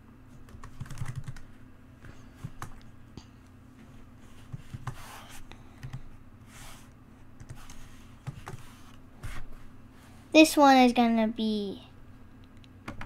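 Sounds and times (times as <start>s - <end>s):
faint low hum: 0.0s - 13.0s
computer keyboard keystrokes: 0.5s - 1.4s, 2.5s - 2.8s, 5.8s - 6.1s, 7.4s - 8.6s, 12.6s - 13.0s.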